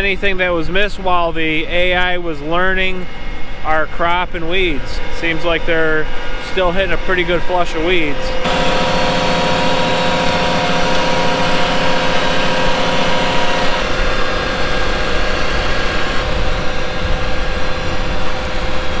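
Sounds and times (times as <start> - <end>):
mechanical drone: 1.6 - 19.0
held whining tones: 6.1 - 19.0.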